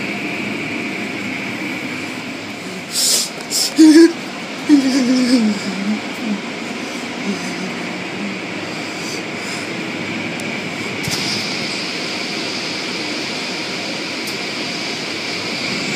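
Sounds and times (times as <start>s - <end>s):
high hiss: 1.9s - 4.2s.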